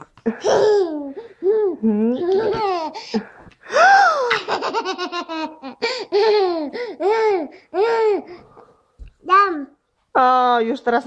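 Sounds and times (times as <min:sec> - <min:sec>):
toddler laughing: 0:00.3 - 0:03.3, 0:04.2 - 0:08.3.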